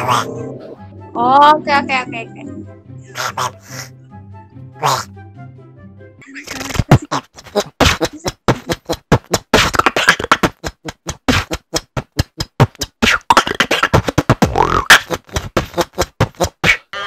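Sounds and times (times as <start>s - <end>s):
person beatboxing: 6.4s - 17.0s.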